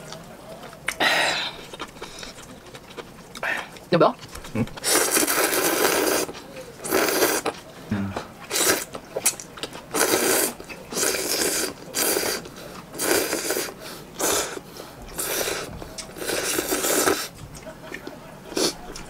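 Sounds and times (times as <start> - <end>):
person slurping noodles: 4.5 - 8.9, 9.9 - 14.6, 15.2 - 17.3.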